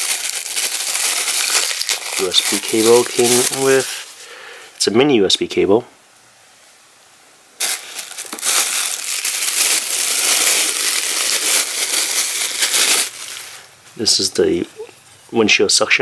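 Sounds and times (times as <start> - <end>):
plastic bag crinkling: 0.0 - 4.3, 7.6 - 13.7.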